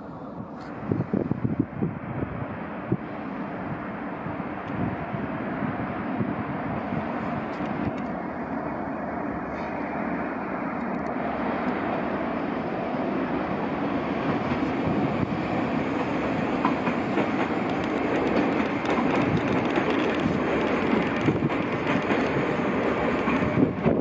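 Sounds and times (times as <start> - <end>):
train rumbling past: 0.0 - 24.0
wheels clicking over rail joints: 15.8 - 24.0.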